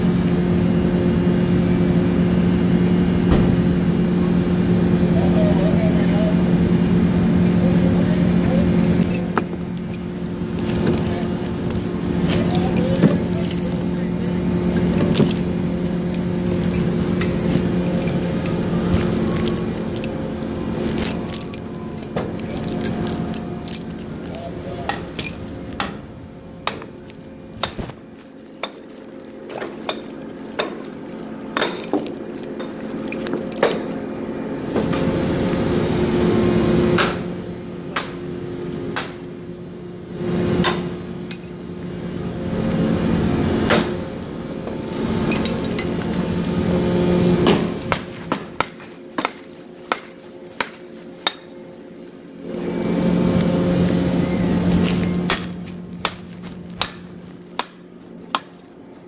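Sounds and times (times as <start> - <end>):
rig machinery humming: 0.0 - 59.0
steel tools clanking: 7.3 - 35.2, 40.6 - 42.2, 44.6 - 51.7.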